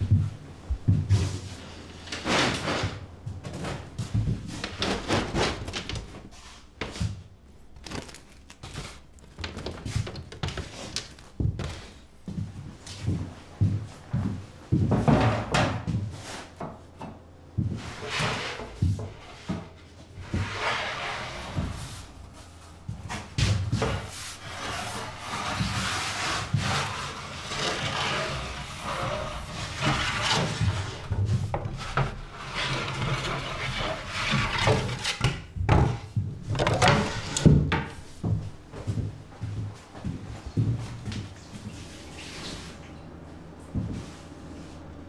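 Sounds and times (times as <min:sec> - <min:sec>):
wooden peel scraping on hearth: 0:24.0 - 0:35.3
wooden knocks and clatters: 0:34.2 - 0:38.0.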